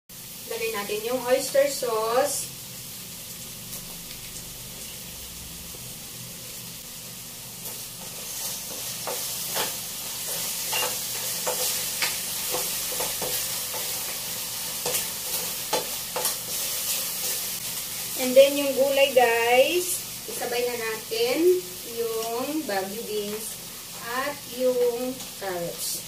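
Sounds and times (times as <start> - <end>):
mushrooms sizzling in a frying pan: 0.1 - 26.0
spatula scraping and clinking on pan: 8.0 - 17.5.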